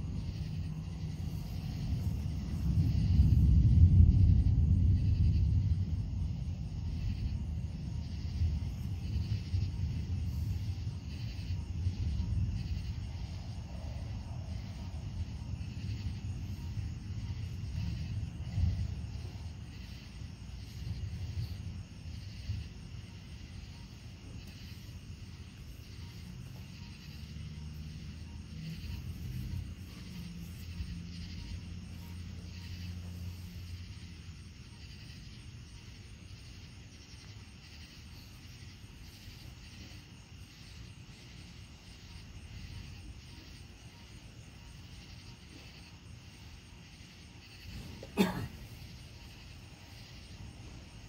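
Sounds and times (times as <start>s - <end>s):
low rumble: 0.0s - 36.8s
insects chirring: 0.0s - 51.0s.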